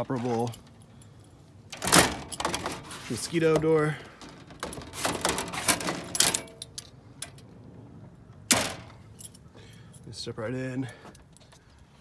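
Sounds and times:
screen door latch rattling: 1.7s - 7.4s, 8.4s - 9.2s.

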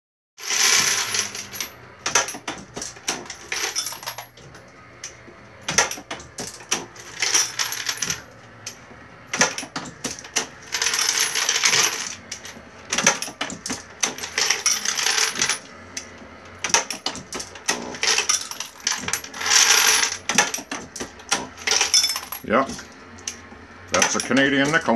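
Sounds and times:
brass cases clinking and rattling: 0.4s - 4.4s, 5.8s - 8.3s, 10.7s - 15.7s, 16.7s - 20.8s, 21.6s - 22.5s.

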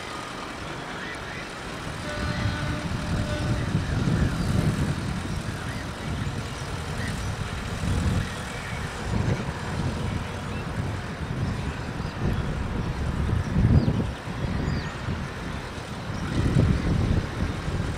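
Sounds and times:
electric train rumbling: 0.0s - 17.9s.

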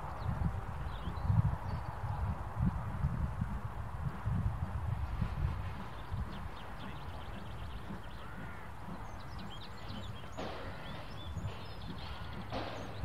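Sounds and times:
small birds chirping: 0.0s - 13.0s
wind rumble on microphone: 0.0s - 13.0s.

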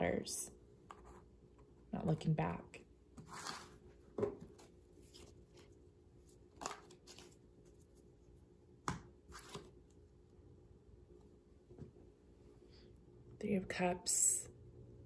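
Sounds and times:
playing cards rustling: 3.2s - 8.1s, 9.2s - 9.8s.

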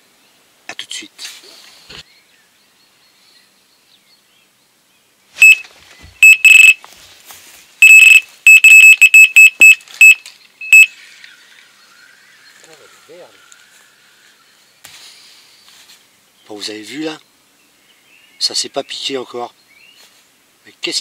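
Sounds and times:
electronic bite alarm beeping: 5.4s - 5.6s, 6.2s - 6.8s, 7.8s - 10.9s.

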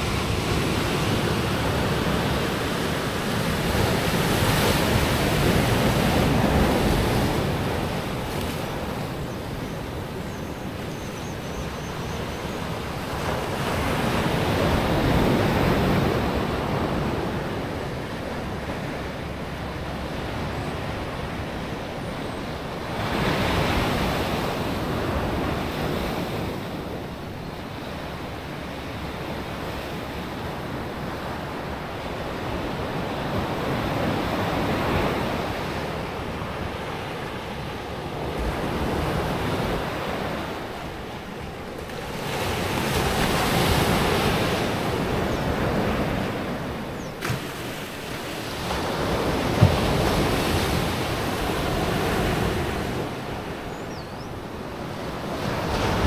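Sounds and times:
surf breaking on shore: 0.0s - 10.2s, 33.1s - 53.7s.

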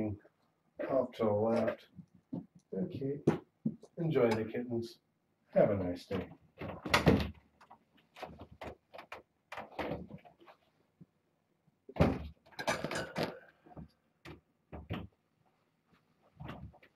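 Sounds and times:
knocks and bumps: 14.2s - 15.2s.

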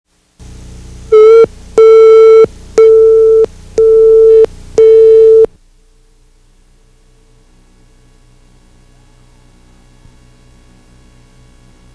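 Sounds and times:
faint hum: 0.2s - 11.9s
test tone beeps: 1.1s - 5.5s.

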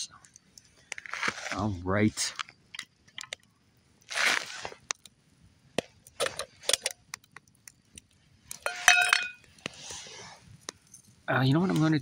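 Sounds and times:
campfire crackling: 0.0s - 12.0s
popcorn popping: 5.8s - 7.6s.

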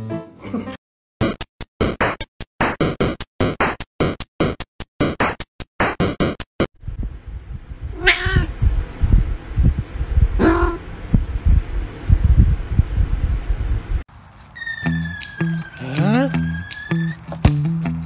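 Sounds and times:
low thumping and rumble: 6.8s - 14.0s
cat meowing: 8.0s - 8.5s
choppy rhythmic music: 15.0s - 18.0s.

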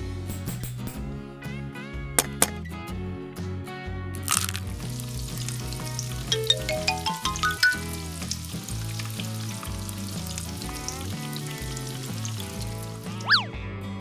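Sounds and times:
background music: 0.0s - 14.0s
frying sizzle: 4.2s - 13.4s
rising run of notes: 6.3s - 8.2s.

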